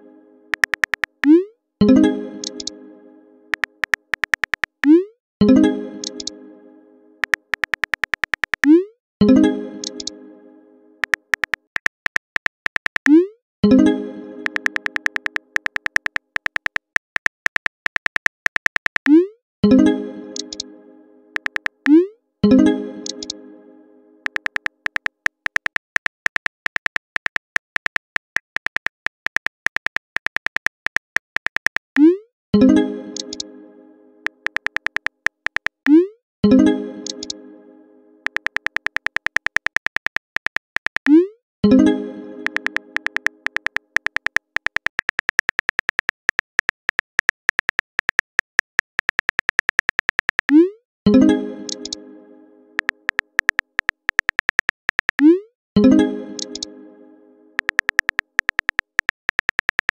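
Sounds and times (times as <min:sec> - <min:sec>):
phone keyboard typing clicks: 0:00.5 - 0:01.4, 0:02.4 - 0:02.7, 0:03.5 - 0:05.0, 0:06.0 - 0:06.3, 0:07.2 - 0:08.8, 0:09.8 - 0:10.1, 0:11.0 - 0:13.3, 0:14.4 - 0:19.2, 0:20.4 - 0:20.6, 0:21.4 - 0:22.0, 0:23.0 - 0:23.4, 0:24.2 - 0:32.1, 0:33.2 - 0:33.4, 0:34.3 - 0:36.0, 0:37.0 - 0:37.3, 0:38.2 - 0:41.2, 0:42.4 - 0:50.6, 0:51.7 - 0:52.0, 0:52.8 - 0:55.3, 0:56.4 - 0:56.7, 0:57.6 - 0:59.9.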